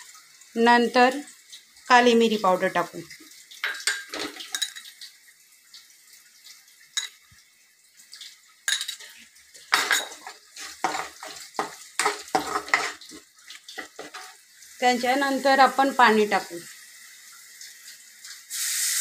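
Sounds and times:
faint frying sizzle: 0.0 - 19.0
spoon scraping a steel pan: 9.8 - 13.2, 13.8 - 14.4.

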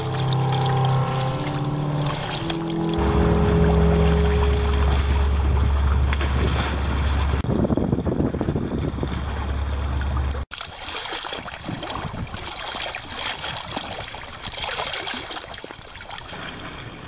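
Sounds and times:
wind buffeting microphone: 3.0 - 10.4, 11.6 - 12.5.

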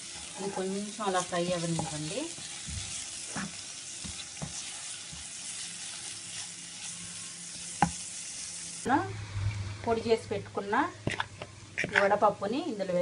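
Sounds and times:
spatula stirring: 0.0 - 8.5, 11.0 - 12.2
masala sizzling in a pan: 0.0 - 13.0.

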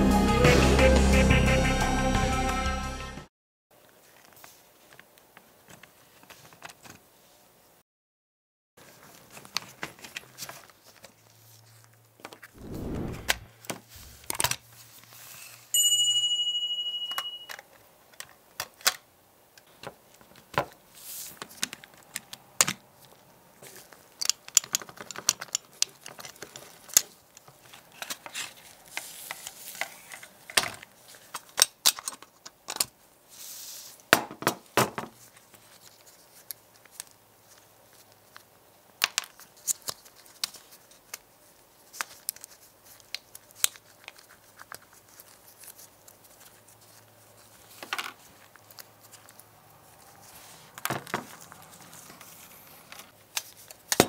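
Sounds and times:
bright metallic ring: 15.8 - 17.6
model car parts clicking and snapping: 23.8 - 28.4, 29.8 - 33.0.

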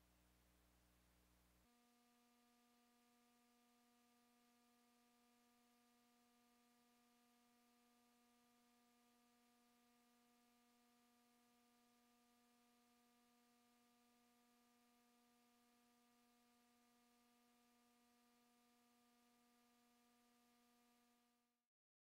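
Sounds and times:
faint steady hum: 0.0 - 21.6.

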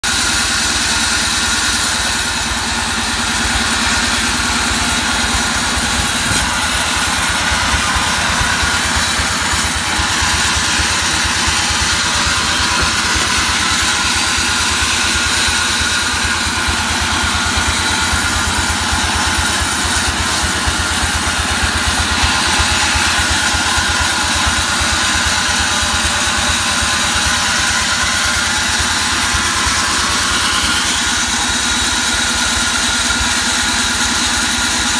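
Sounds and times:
band saw cutting log: 0.0 - 34.9
machine drive pulsing: 2.1 - 24.8.

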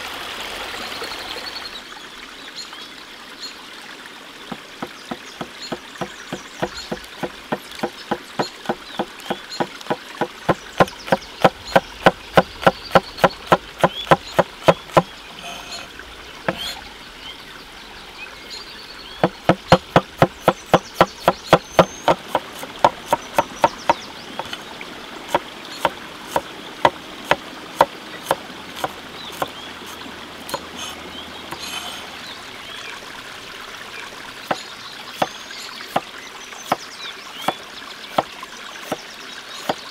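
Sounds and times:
stream trickling: 0.0 - 39.9
knife chopping on wooden board: 4.8 - 15.8, 16.5 - 16.8, 19.2 - 24.0, 25.3 - 29.5, 30.5 - 31.8.

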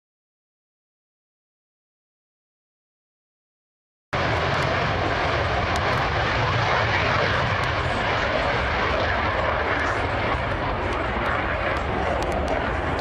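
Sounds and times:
jet engine roaring: 4.2 - 13.0.

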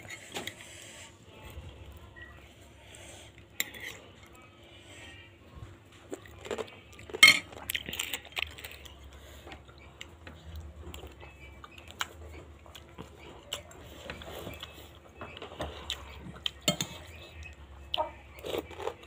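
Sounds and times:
chewing: 6.0 - 19.0.

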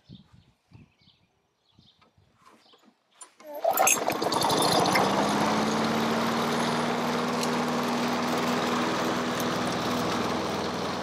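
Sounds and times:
lawn mower engine running: 3.4 - 11.0.

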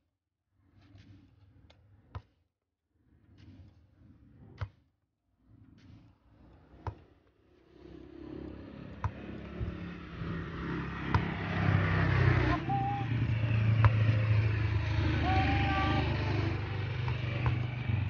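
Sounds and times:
motorcycle engine approaching: 7.6 - 18.0.

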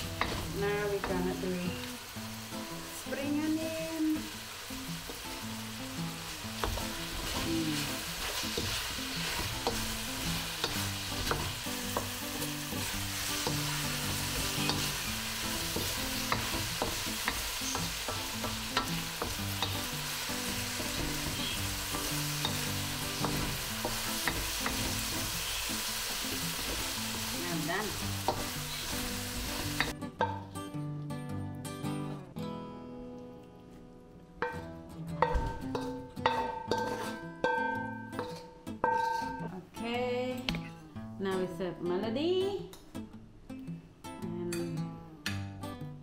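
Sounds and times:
food sizzling in a hot wok: 0.0 - 30.4, 35.2 - 39.4
wooden spatula scraping a pan: 36.6 - 37.2.

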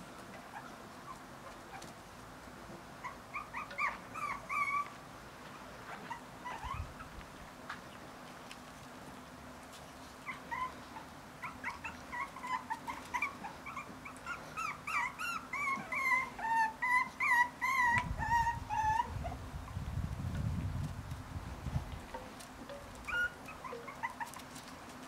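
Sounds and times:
puppies whimpering and yelping: 0.4 - 2.0, 3.0 - 5.0, 5.8 - 7.4, 10.1 - 19.8, 22.0 - 25.0.

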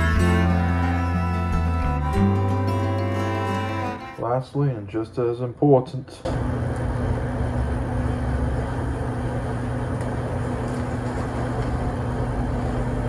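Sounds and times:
steady mechanical hum: 4.2 - 13.0.

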